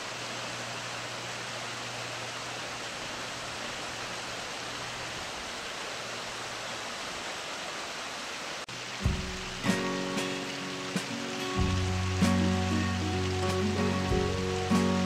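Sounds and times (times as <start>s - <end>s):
stream rushing over rocks: 0.0s - 15.0s.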